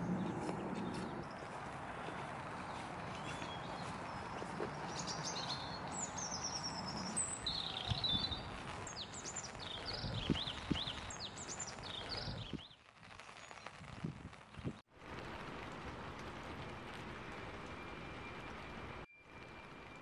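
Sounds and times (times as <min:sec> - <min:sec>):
small birds chirping: 0:00.0 - 0:14.8
footsteps on wet path: 0:00.0 - 0:17.8.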